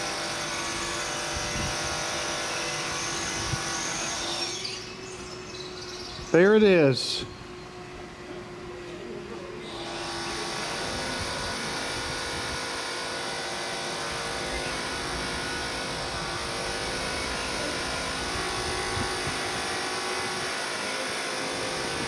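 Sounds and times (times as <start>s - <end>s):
train electric whine: 0.0s - 22.0s.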